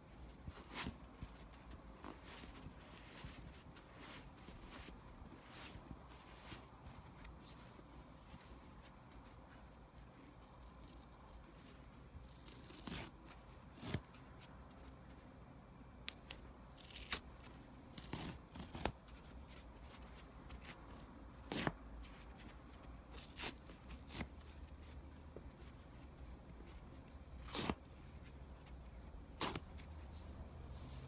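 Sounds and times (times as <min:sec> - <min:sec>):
foam tearing by hand: 0:27.3 - 0:27.8, 0:29.2 - 0:29.6.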